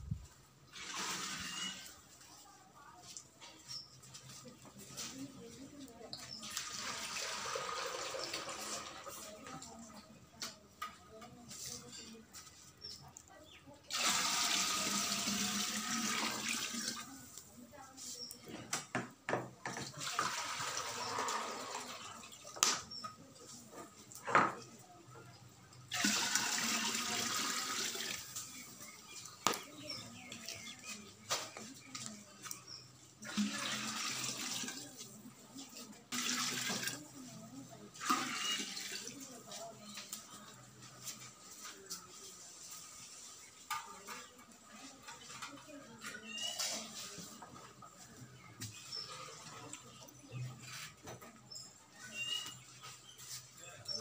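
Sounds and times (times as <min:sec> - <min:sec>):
water pouring into clay pot: 0:00.7 - 0:01.9, 0:06.4 - 0:09.2, 0:13.9 - 0:17.2, 0:19.9 - 0:22.5, 0:25.9 - 0:28.5, 0:33.2 - 0:35.1, 0:36.1 - 0:37.0, 0:38.0 - 0:39.3.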